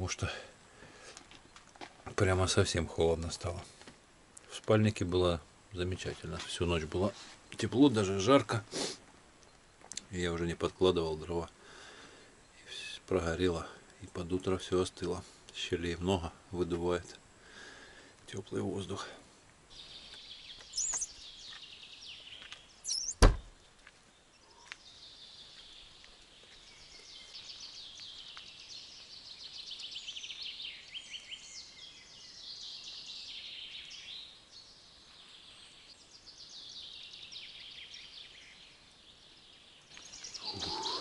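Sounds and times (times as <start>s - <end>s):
songbirds trilling: 9.3s - 41.0s.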